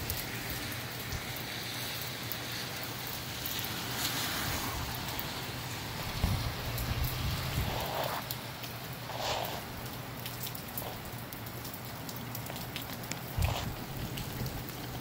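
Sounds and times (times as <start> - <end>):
raindrops ticking: 0.0 - 15.0
steady rain falling: 0.0 - 15.0
wind rumbling on microphone: 4.3 - 8.3, 13.2 - 15.0.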